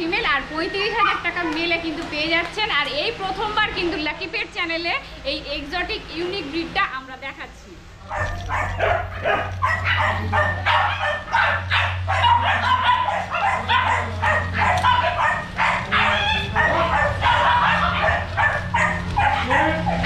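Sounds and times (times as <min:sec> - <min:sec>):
steady low hum: 0:02.7 - 0:20.0
dogs yipping and whining: 0:08.0 - 0:20.0.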